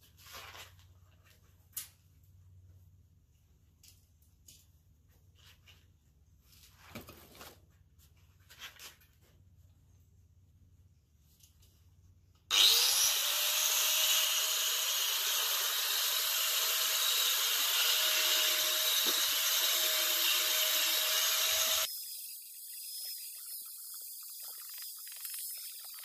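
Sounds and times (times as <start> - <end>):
angle grinder sanding metal: 12.5 - 26.0.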